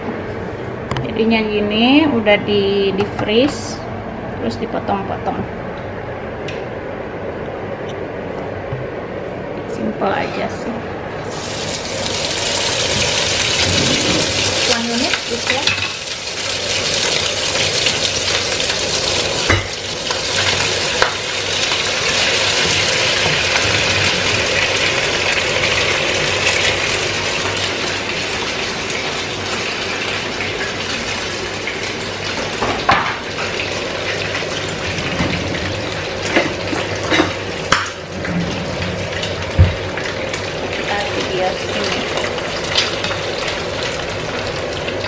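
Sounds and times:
beef sizzling in frying pan: 11.2s - 34.9s, 39.0s - 45.0s.

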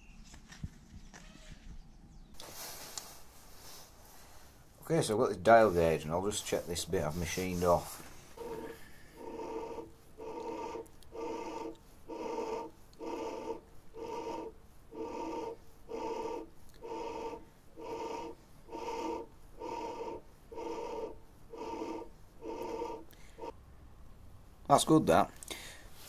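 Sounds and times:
lathe chuck rhythmic squeaky rub: 4.8s - 23.6s.

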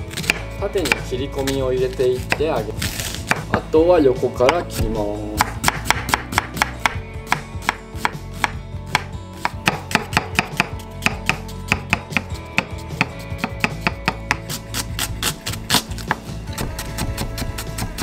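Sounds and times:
knife chopping on wooden board: 0.1s - 3.7s, 4.4s - 18.0s.

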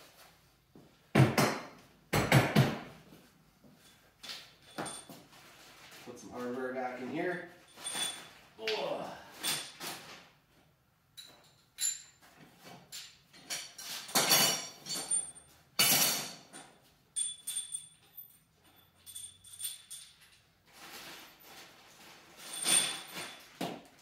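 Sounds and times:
metal tools clinking: 3.8s - 5.3s, 7.5s - 8.6s, 9.3s - 10.0s, 11.2s - 20.8s, 22.3s - 23.6s.

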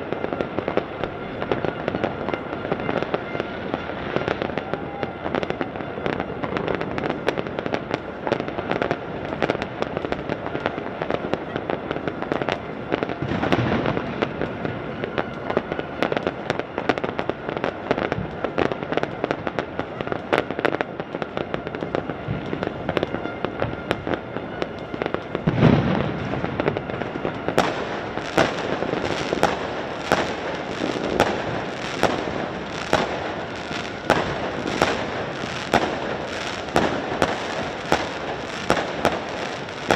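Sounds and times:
fireworks crackling: 0.0s - 39.9s
heavy fireworks booms: 0.0s - 39.9s
sharp firecracker bangs: 21.0s - 39.9s.

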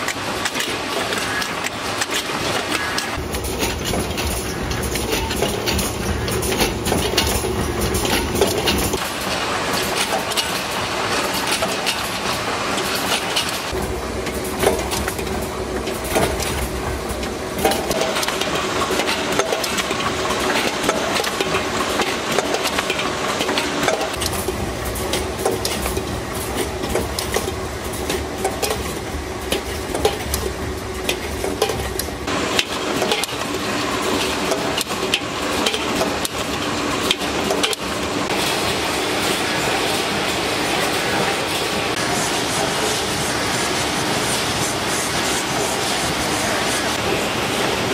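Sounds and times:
production line machinery running: 0.0s - 47.9s
metal cans clattering: 14.4s - 38.5s.

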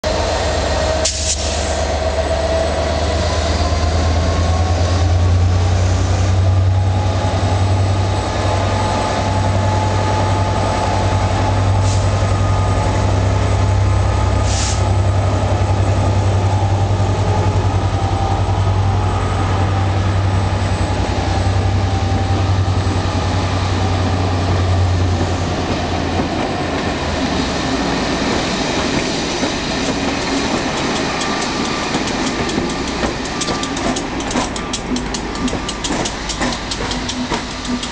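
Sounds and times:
diesel locomotive engine drone: 0.0s - 37.9s
train wheels squealing: 28.1s - 37.9s.

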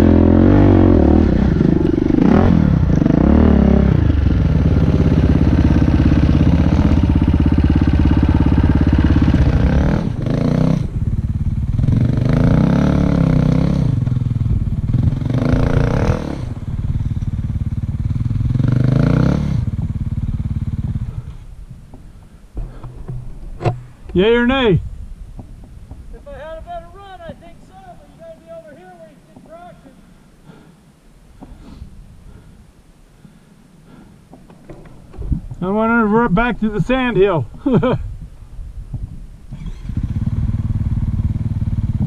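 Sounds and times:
dirt bike engine revving: 0.0s - 21.5s, 39.5s - 42.0s.

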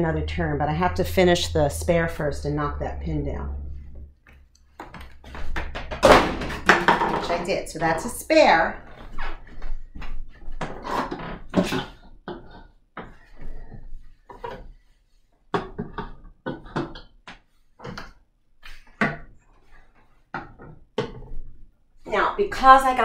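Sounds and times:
plastic bottles knocking on wooden floor: 4.8s - 8.1s.

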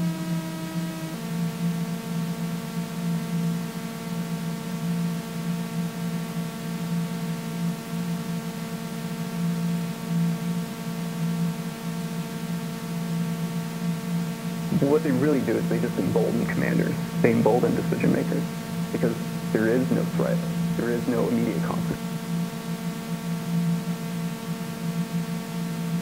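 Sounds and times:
electronic drone with low hum: 14.2s - 26.0s.

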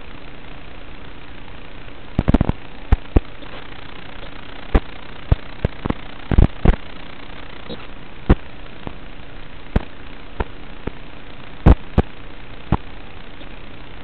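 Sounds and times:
static hiss: 0.0s - 14.0s
sharp pops and crackles: 2.1s - 9.0s, 9.7s - 11.0s, 11.6s - 13.6s.

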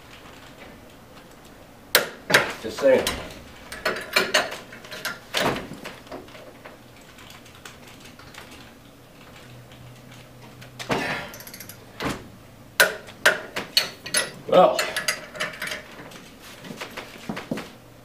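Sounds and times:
metal tools knocking on steel: 2.0s - 5.2s, 12.8s - 15.8s.

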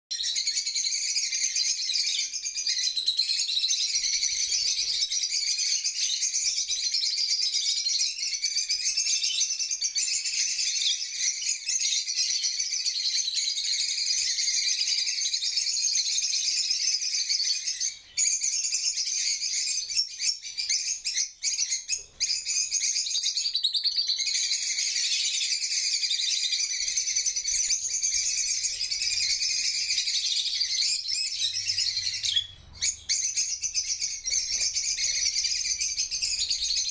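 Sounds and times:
lovebirds chattering: 26.1s - 36.9s.

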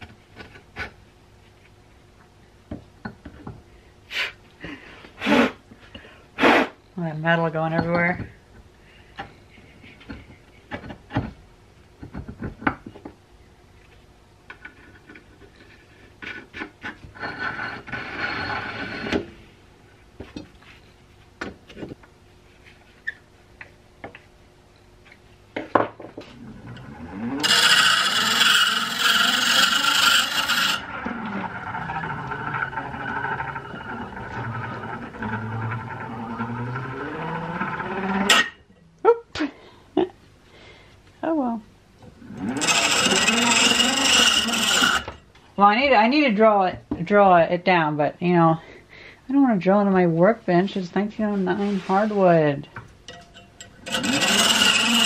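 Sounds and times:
metal grinding on stone: 14.6s - 19.2s, 26.5s - 38.6s, 42.2s - 45.2s, 53.1s - 55.0s
hand-crank gears whirring: 26.5s - 38.6s, 42.3s - 45.2s, 53.2s - 55.0s.

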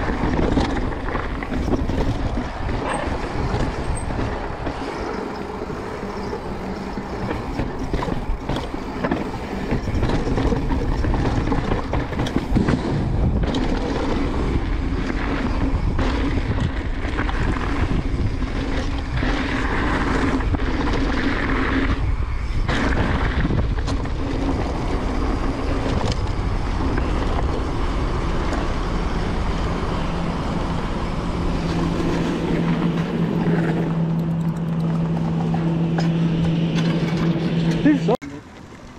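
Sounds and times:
bike knocks and rattles: 0.0s - 27.8s
wind and tyre noise: 0.0s - 38.9s.

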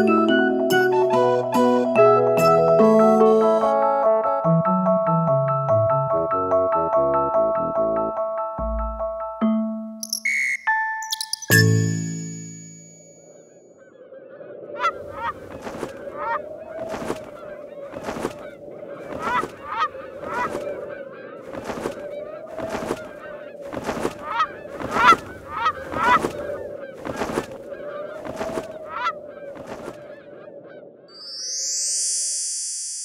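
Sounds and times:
goose honking: 14.8s - 17.1s, 19.1s - 21.9s, 22.6s - 29.8s
wings flapping: 14.8s - 30.3s.

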